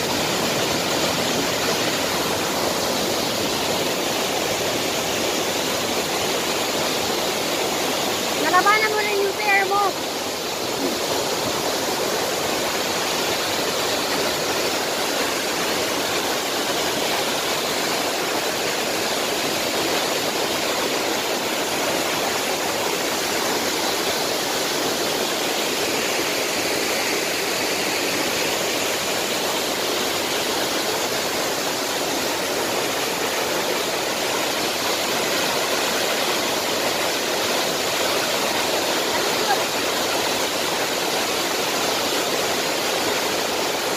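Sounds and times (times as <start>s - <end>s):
waterfall rushing: 0.0s - 43.9s.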